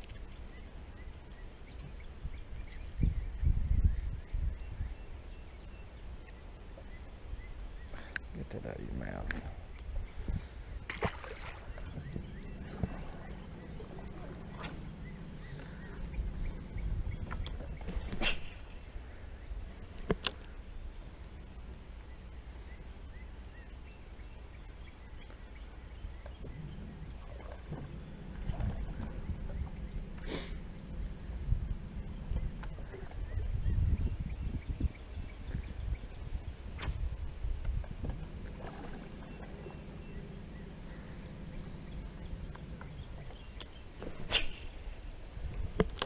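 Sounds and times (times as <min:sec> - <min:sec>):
steady low rumble: 0:00.0 - 0:46.0
faint bird chirps: 0:11.4 - 0:36.4, 0:38.8 - 0:45.2
electric trolling motor humming: 0:11.5 - 0:18.1, 0:23.4 - 0:33.6, 0:37.0 - 0:44.0.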